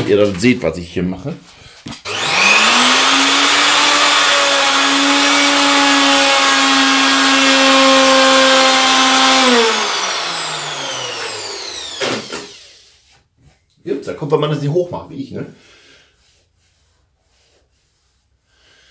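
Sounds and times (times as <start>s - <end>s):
router whining while routing wood: 2.0s - 12.8s.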